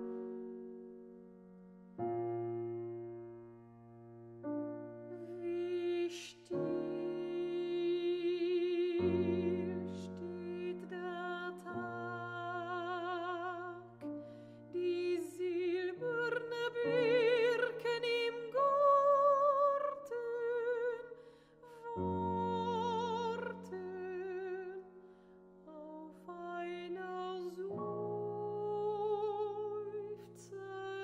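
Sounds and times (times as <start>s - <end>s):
grand piano chords: 0.0s - 31.0s
woman singing with vibrato: 5.1s - 14.1s, 14.7s - 24.9s, 25.7s - 31.0s.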